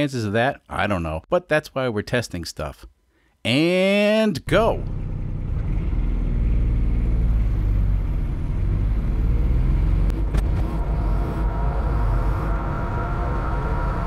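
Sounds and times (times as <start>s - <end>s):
diesel engine accelerating: 4.6s - 14.0s
high-pitched engine drone: 10.0s - 14.0s.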